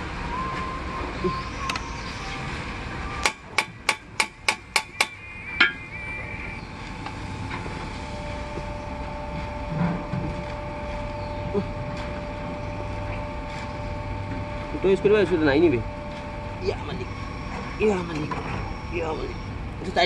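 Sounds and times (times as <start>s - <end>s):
hammer striking steel: 3.2s - 5.8s.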